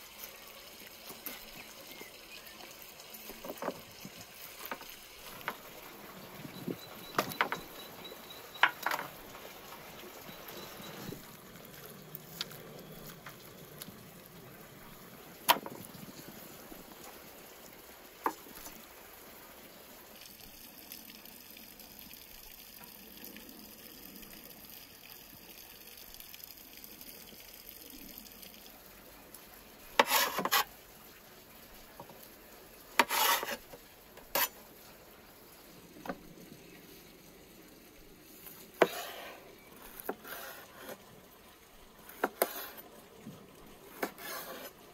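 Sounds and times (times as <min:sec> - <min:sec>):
knife scraping meat on griddle: 0:30.0 - 0:30.7, 0:33.0 - 0:34.6, 0:38.8 - 0:41.0, 0:42.1 - 0:42.8, 0:43.9 - 0:44.7.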